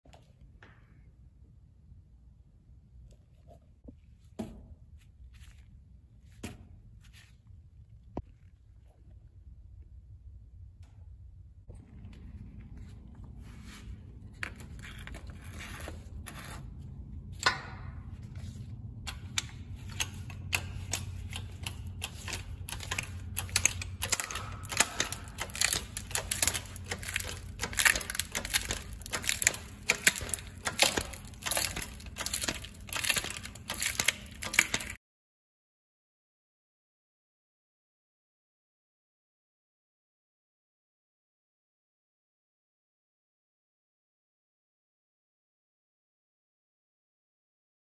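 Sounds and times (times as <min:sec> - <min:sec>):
low rumble: 0:07.8 - 0:22.0
phone glass crackling and snapping: 0:22.6 - 0:35.0.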